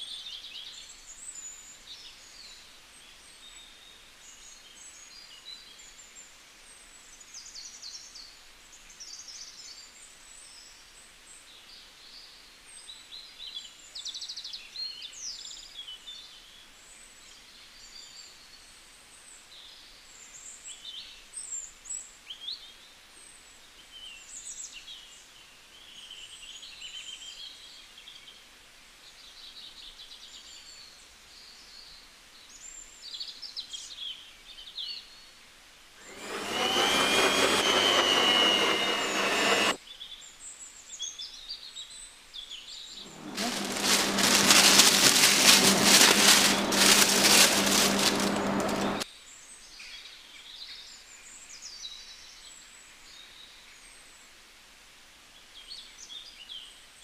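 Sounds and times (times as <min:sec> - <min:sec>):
stand mixer whining: 0:36.0 - 0:39.8, 0:43.1 - 0:49.0.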